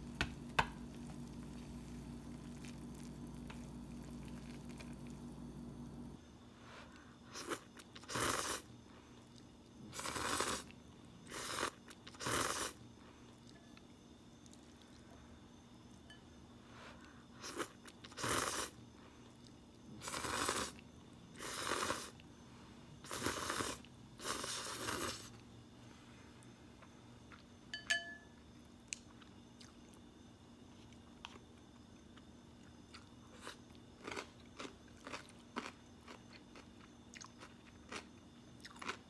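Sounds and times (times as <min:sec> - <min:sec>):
person slurping noodles: 0:07.3 - 0:08.7, 0:09.9 - 0:10.7, 0:11.3 - 0:12.8, 0:17.4 - 0:18.8, 0:20.0 - 0:20.8, 0:21.4 - 0:22.2, 0:23.1 - 0:25.3.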